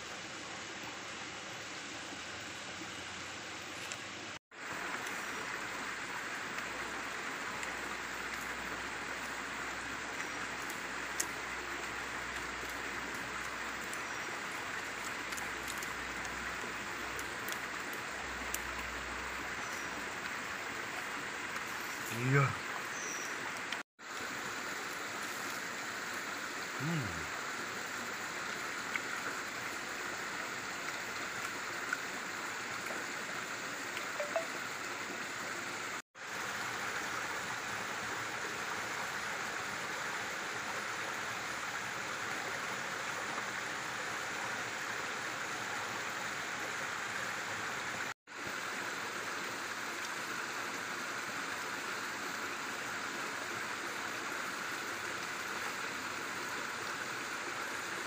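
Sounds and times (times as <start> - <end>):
stream flowing: 0.0 - 58.0.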